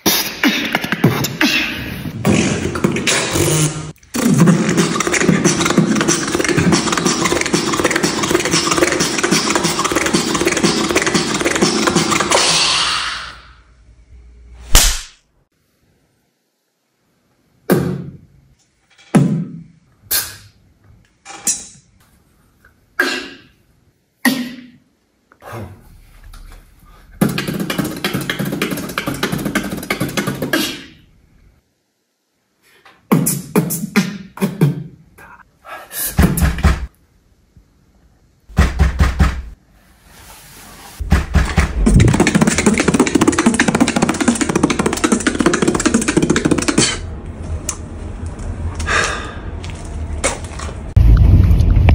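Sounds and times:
beatboxing: 0.0 - 13.4, 20.1 - 20.6, 27.2 - 31.0, 33.0 - 36.9, 41.1 - 47.1.

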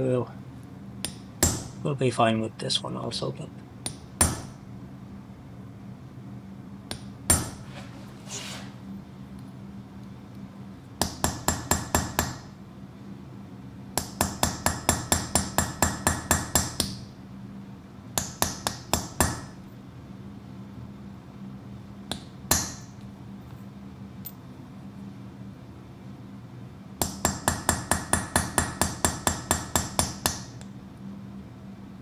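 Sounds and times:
hammer tapping chisel on metal: 27.0 - 30.7.

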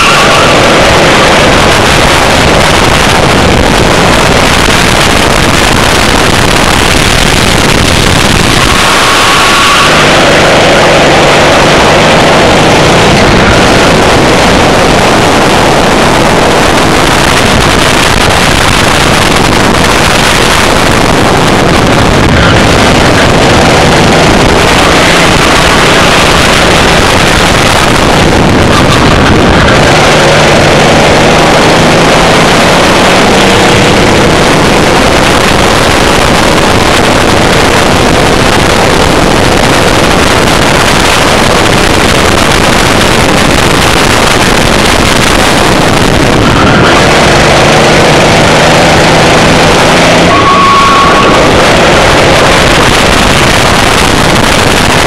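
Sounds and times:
kart engine: 0.0 - 55.0
wind noise on microphone: 0.0 - 55.0.

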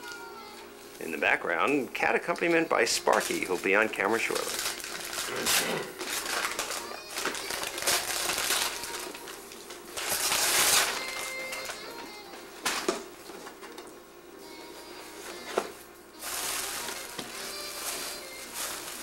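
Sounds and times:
wrapping paper tearing: 2.8 - 12.0, 16.2 - 19.0.

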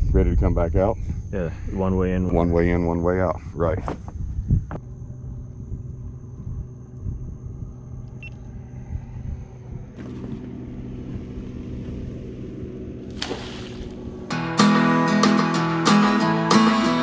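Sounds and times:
boat engine idling: 4.8 - 14.6.

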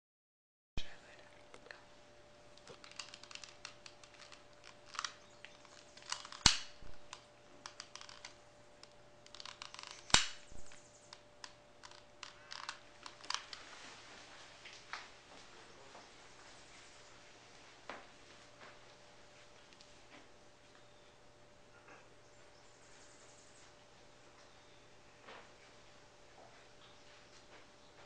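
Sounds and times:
faint steady hum: 0.8 - 28.0
clicks and rattles of equipment: 2.6 - 10.5.

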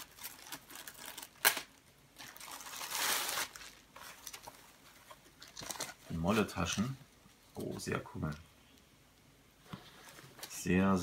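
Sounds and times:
plastic packaging crinkling: 0.0 - 6.5.

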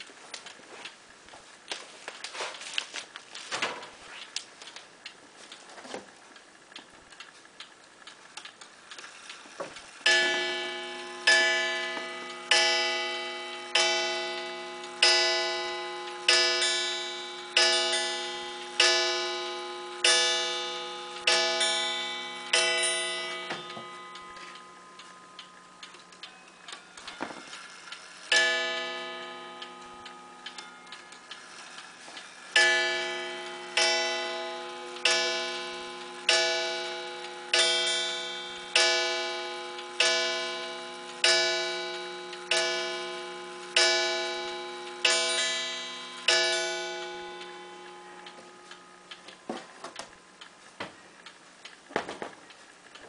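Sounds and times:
pendulum clock ticking: 6.3 - 53.0
clock chime on wire gong: 10.0 - 50.4.

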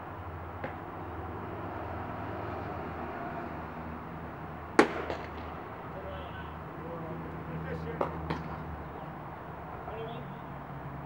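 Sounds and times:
baseball bat crack: 0.6 - 1.0, 4.7 - 5.7, 8.0 - 8.7.

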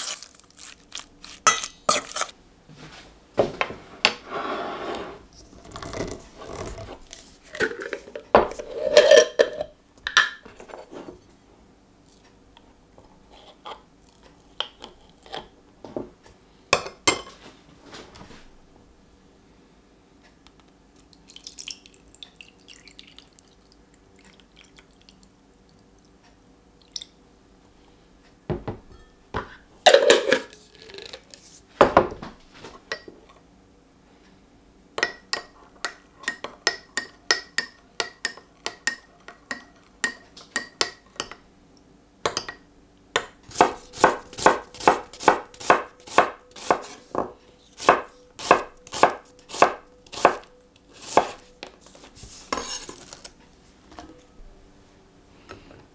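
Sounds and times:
water pouring into glass jug: 21.3 - 23.6
knife chopping on wooden board: 43.2 - 51.4.

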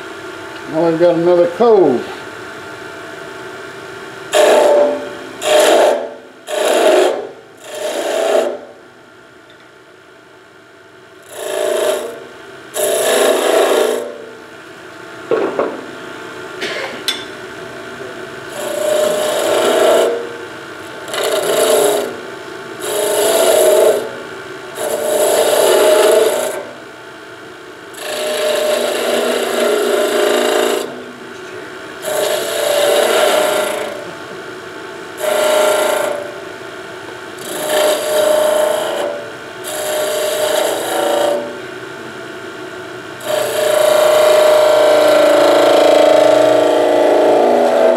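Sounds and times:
wood lathe running: 0.7 - 2.0, 4.3 - 8.7, 11.2 - 14.2, 18.5 - 26.8, 27.9 - 31.0, 32.0 - 34.2, 35.2 - 36.4, 37.4 - 41.6, 43.2 - 47.9
chisel rasping on spinning wood: 4.3 - 8.7, 11.2 - 14.3, 18.5 - 20.4, 21.0 - 24.2, 24.8 - 26.8, 28.0 - 31.1, 32.0 - 34.2, 35.2 - 36.4, 37.4 - 41.6, 43.2 - 47.9.

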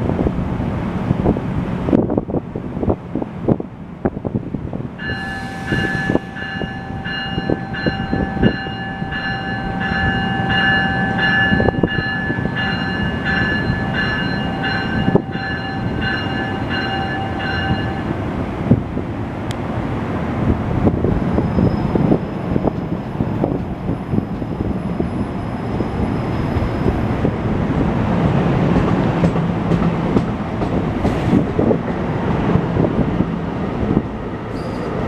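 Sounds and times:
train cars rumbling past: 0.0 - 35.0
train bell ringing: 5.0 - 18.2.

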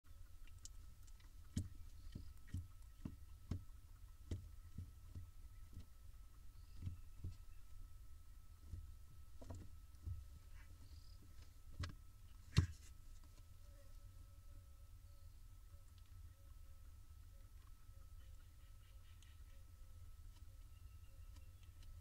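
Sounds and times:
faint high whine: 0.1 - 22.0
soft clicks and knocks in nest box: 0.5 - 5.9, 8.6 - 13.5.

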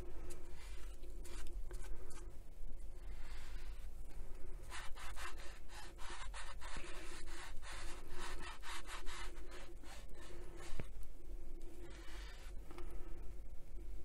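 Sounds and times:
hand rubbing polish: 4.6 - 10.9.

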